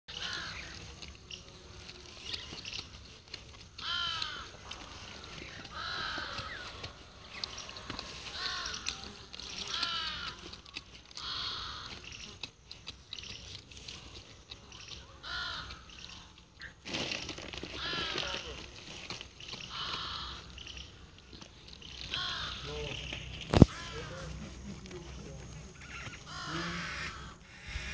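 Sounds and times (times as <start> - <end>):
crows cawing: 0.1 - 1.2, 3.6 - 12.5, 15.0 - 16.4, 17.5 - 27.9.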